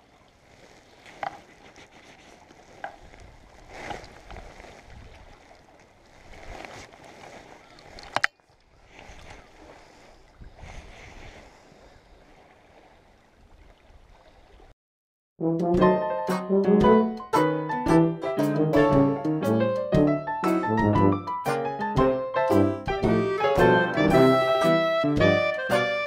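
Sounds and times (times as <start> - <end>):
water sloshing and lapping: 0.0 - 14.7
piano music: 15.4 - 26.0.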